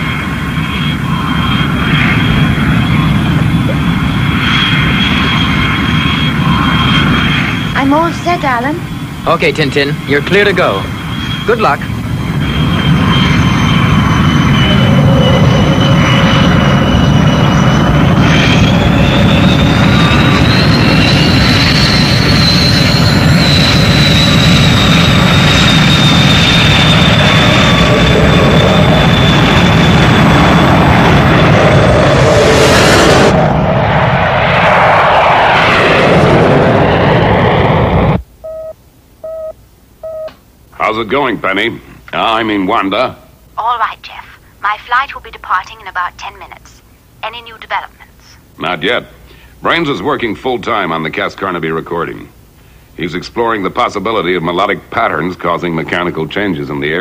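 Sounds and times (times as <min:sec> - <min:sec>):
jet engines whining and rumbling: 0:00.0 - 0:57.0
short electronic beeps: 0:38.4 - 0:40.3.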